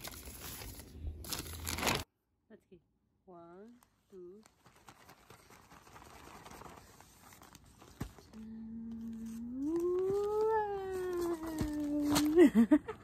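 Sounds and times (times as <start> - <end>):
wrapping paper rustling: 0.0 - 2.1, 4.2 - 12.7.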